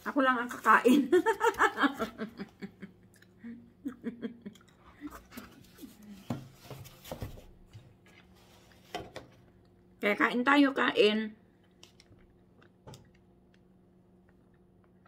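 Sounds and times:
woman laughing: 0:00.8 - 0:05.2.

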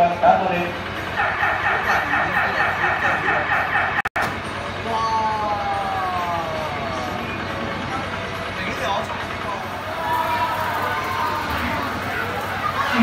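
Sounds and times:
siren warbling: 0:01.0 - 0:04.2.

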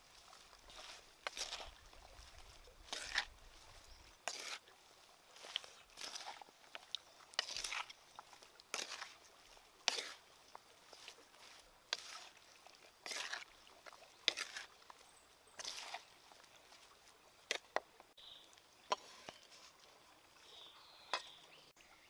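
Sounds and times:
vegetables rustling and crunching: 0:00.0 - 0:04.6, 0:05.3 - 0:12.4, 0:13.0 - 0:14.8, 0:15.6 - 0:17.8.

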